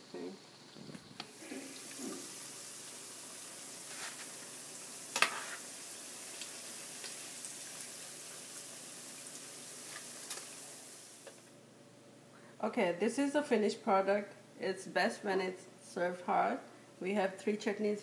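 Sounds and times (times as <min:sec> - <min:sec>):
fritters sizzling in oil: 0:00.0 - 0:11.4.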